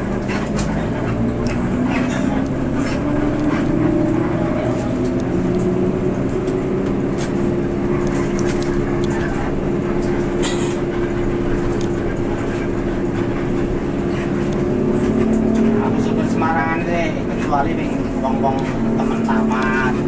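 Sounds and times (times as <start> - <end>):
bus diesel engine droning: 0.0 - 20.0.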